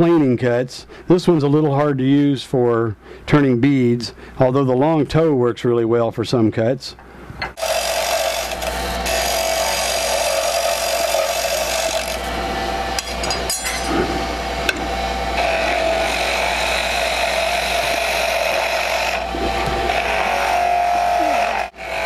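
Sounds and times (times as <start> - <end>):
chisel shaving spinning wood: 7.6 - 13.0, 15.3 - 22.0
wood lathe humming: 7.6 - 22.0.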